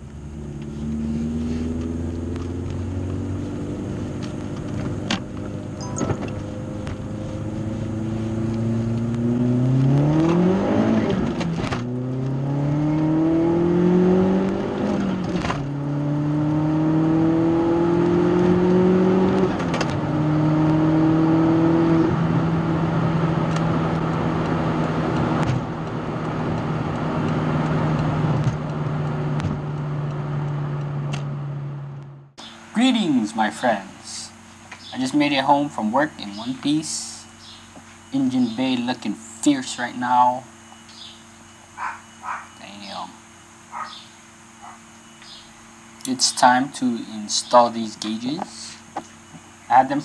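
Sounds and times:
car engine accelerating: 0.0s - 35.4s.

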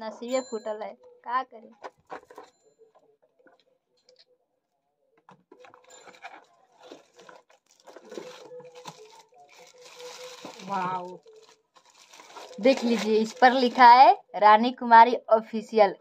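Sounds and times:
packaging rustling and crinkling: 1.7s - 3.6s, 5.3s - 14.0s.

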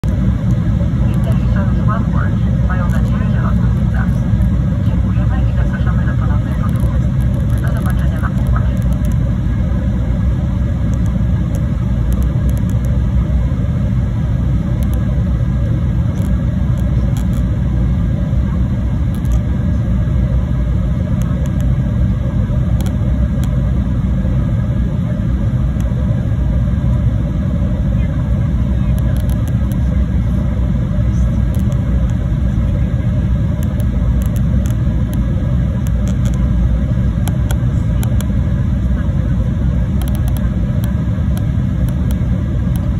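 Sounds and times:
jet engine rumble: 0.0s - 42.9s.

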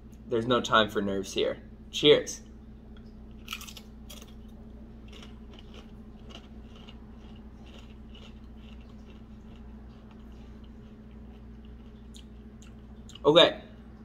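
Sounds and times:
chip crunching while chewed: 3.4s - 13.9s.

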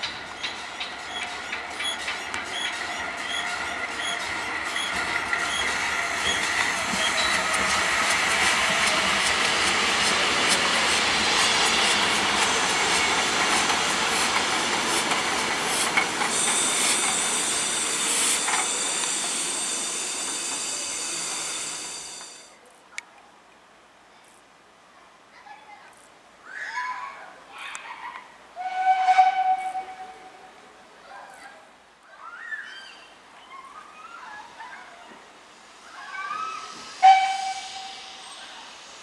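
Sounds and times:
wheels clicking over rail joints: 0.0s - 10.9s, 11.8s - 19.6s
steam hissing: 0.2s - 22.5s, 35.4s - 39.0s
wheels squealing: 14.4s - 22.5s.

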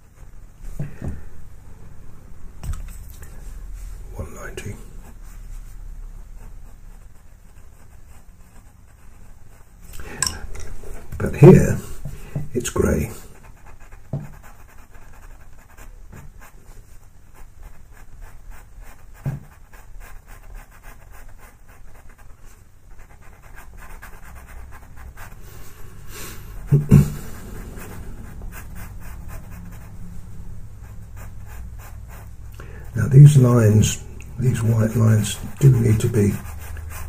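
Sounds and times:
pencil scratching on paper: 4.0s - 10.0s, 10.9s - 30.2s, 30.8s - 37.0s
low thud: 26.7s - 27.3s.

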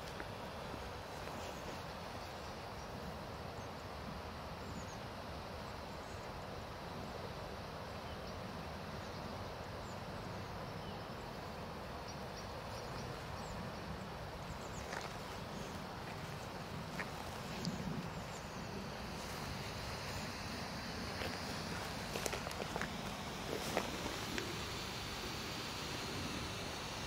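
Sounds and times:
smoke flare hissing: 15.4s - 27.0s.

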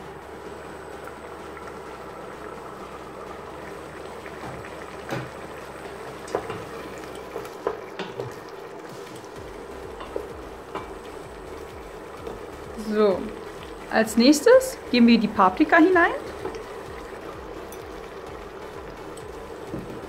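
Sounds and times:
stew bubbling in a pot: 0.0s - 20.0s
wooden spoon stirring in a pot: 5.8s - 20.0s.

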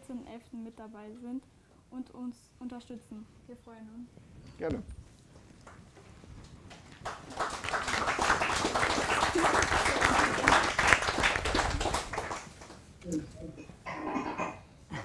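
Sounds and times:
people applauding: 6.7s - 12.9s.

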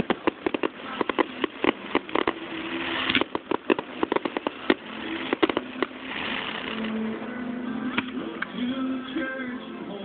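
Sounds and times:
fireworks bangs: 0.0s - 7.2s
fireworks crackling hiss: 0.0s - 9.5s.

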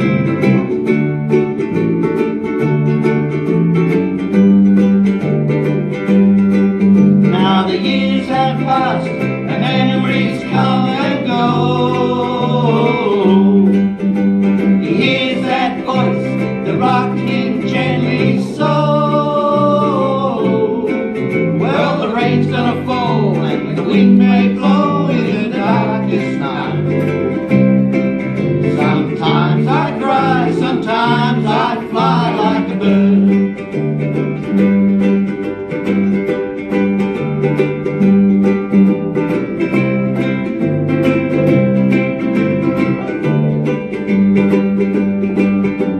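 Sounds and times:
ukuleles strumming chords: 0.0s - 45.9s
person singing with vibrato: 7.3s - 14.0s, 14.7s - 27.5s, 28.6s - 33.6s.

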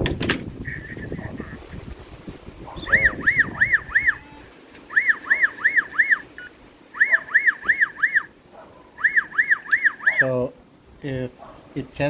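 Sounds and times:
rising and falling electronic chirps: 2.8s - 8.3s, 9.0s - 10.3s.

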